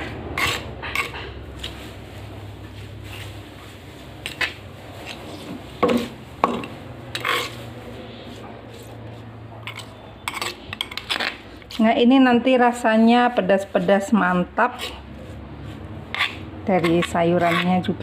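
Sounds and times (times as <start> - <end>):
spoon scraping stone mortar: 0.0 - 1.8, 4.2 - 18.0.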